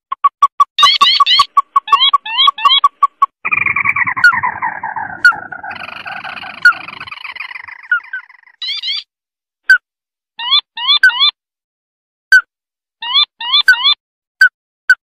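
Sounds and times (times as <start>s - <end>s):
crake call rattling trill: 0.8s - 9.0s
quick rising bird notes: 3.4s - 8.6s.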